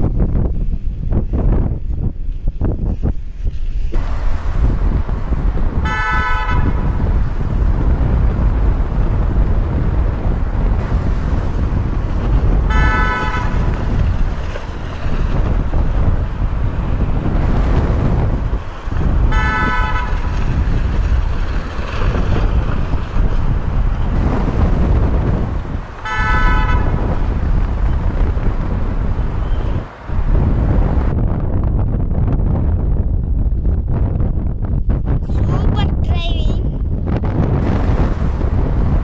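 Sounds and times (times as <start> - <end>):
car low rumble: 0.0 - 39.0
car horn tooting: 5.8 - 7.0, 12.6 - 14.0, 19.2 - 20.4, 26.0 - 27.2.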